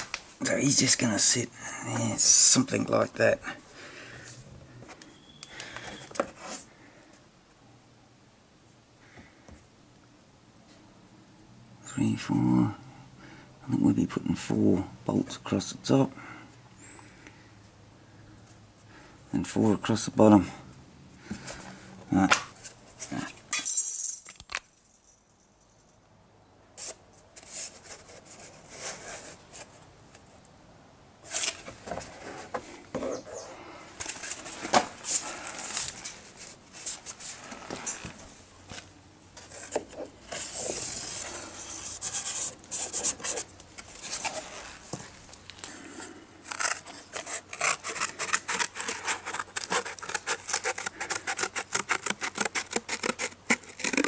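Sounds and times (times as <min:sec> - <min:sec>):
scratchy strokes: 0:39.4 - 0:44.9, 0:45.9 - 0:54.0.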